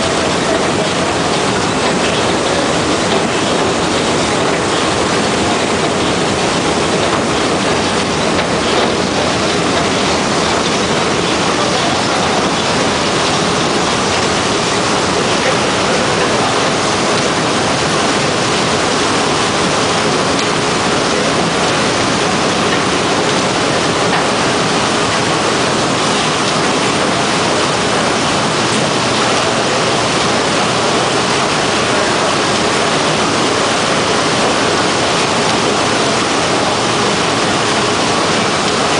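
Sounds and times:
machine rumble: 0.0s - 38.9s
water spraying and pouring: 0.0s - 38.9s.

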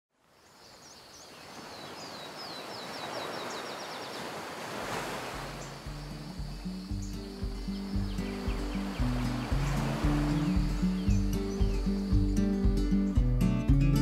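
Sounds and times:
rushing water: 0.2s - 13.3s
soft music with low notes: 5.4s - 14.0s
bird trilling: 5.5s - 12.5s.

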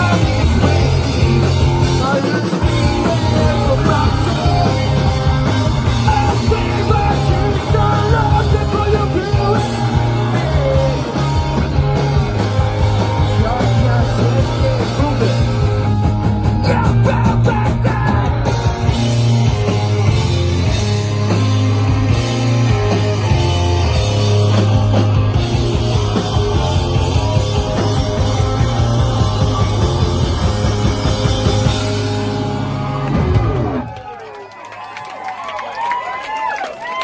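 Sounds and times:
person singing: 0.0s - 11.5s, 13.2s - 15.6s, 16.4s - 18.7s
punk rock band playing live: 0.0s - 34.0s.

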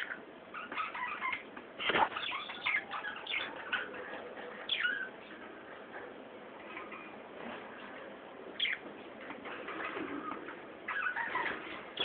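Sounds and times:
budgerigars chattering: 8.6s - 8.8s, 10.9s - 12.0s.

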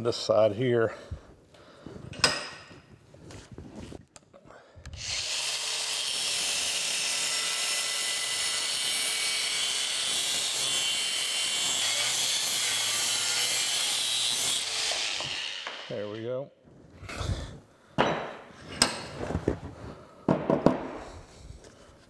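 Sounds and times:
angle grinder cutting metal: 5.0s - 16.2s.

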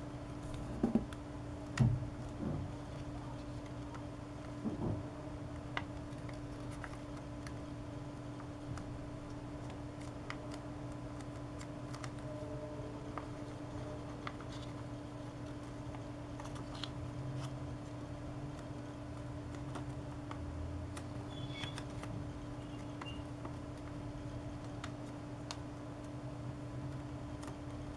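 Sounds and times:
low hum: 0.0s - 24.7s
paper folding and crinkling: 5.6s - 7.7s, 8.3s - 25.7s.

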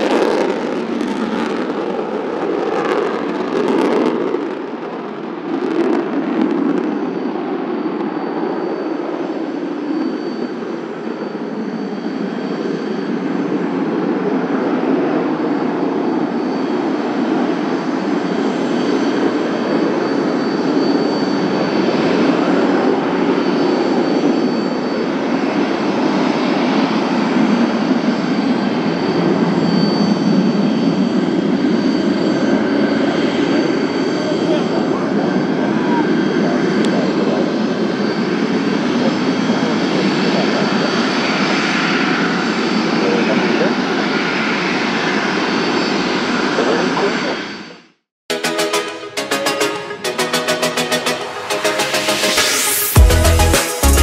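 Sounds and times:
faint high whine: 0.0s - 41.7s
loud jet roar: 0.0s - 54.0s.

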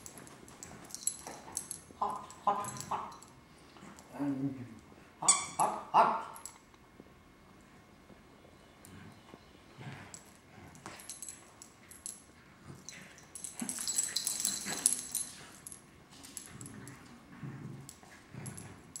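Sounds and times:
small clicks and rattles: 0.0s - 3.4s, 10.1s - 17.2s
dogs growling and whining: 12.7s - 19.0s.

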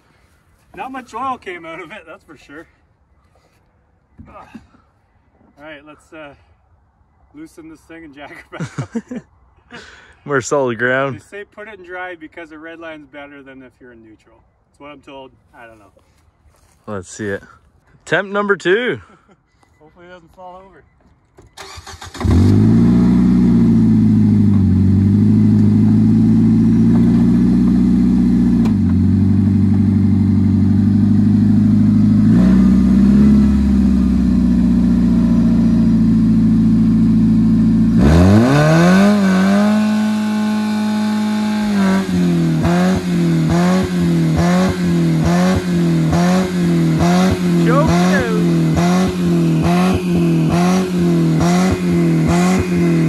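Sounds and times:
car engine revving high: 21.9s - 53.0s.

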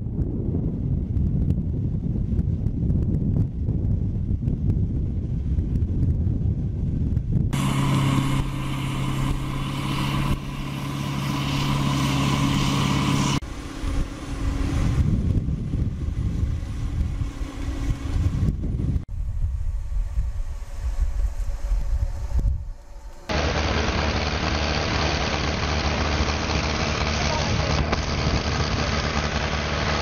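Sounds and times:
low rumble: 0.0s - 30.0s
bulldozer diesel engine under load: 7.6s - 18.4s, 23.3s - 30.0s.

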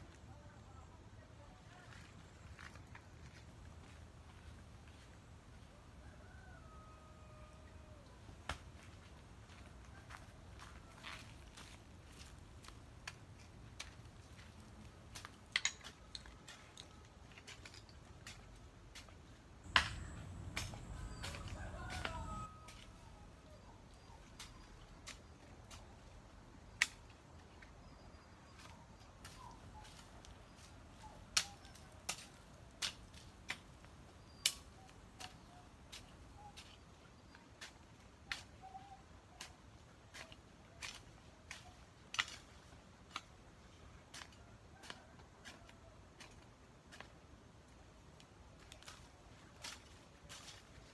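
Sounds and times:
hoe chopping dry earth: 19.7s - 22.5s.

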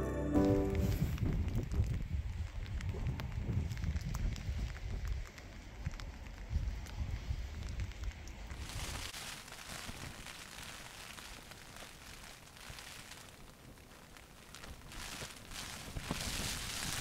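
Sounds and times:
fine crackling patter: 0.1s - 17.0s
wind rumbling on microphone: 0.7s - 17.0s.

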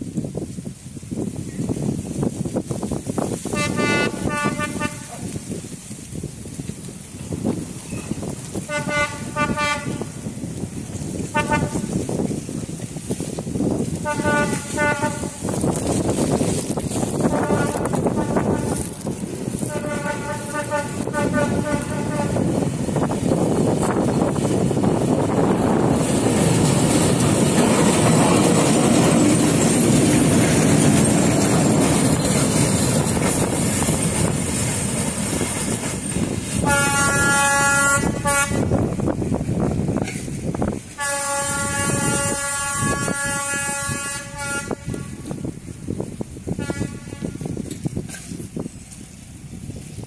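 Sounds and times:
diesel locomotives rumbling: 0.0s - 50.0s
locomotive horn blasts: 3.5s - 5.4s, 7.9s - 10.2s, 11.2s - 12.1s, 14.0s - 15.7s, 17.2s - 23.1s, 36.6s - 38.9s, 41.0s - 45.5s, 46.6s - 47.7s.

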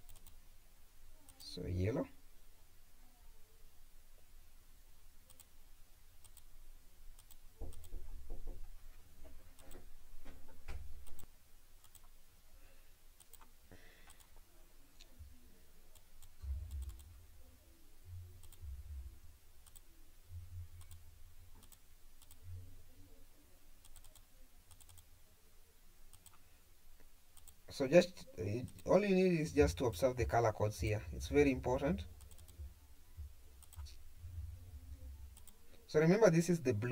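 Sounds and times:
computer mouse clicks: 0.0s - 0.4s, 5.3s - 5.5s, 6.2s - 6.5s, 7.1s - 8.0s, 9.6s - 9.9s, 11.0s - 12.2s, 13.2s - 14.4s, 15.9s - 17.1s, 18.4s - 18.6s, 19.6s - 19.9s, 20.8s - 21.0s, 21.6s - 22.4s, 23.8s - 25.1s, 26.1s - 26.4s, 27.3s - 27.6s, 32.2s - 32.7s, 33.6s - 34.0s, 35.3s - 35.6s.

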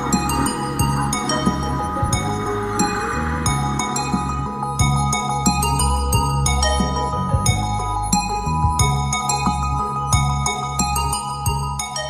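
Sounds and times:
background music with chimes: 0.0s - 12.0s.

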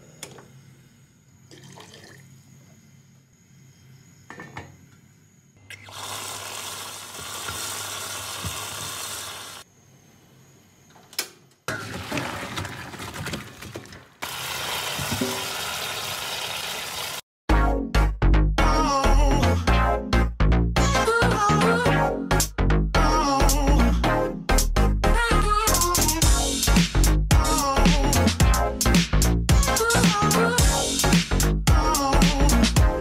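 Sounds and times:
tap water spraying into a sink: 5.7s - 9.6s, 14.2s - 17.2s.

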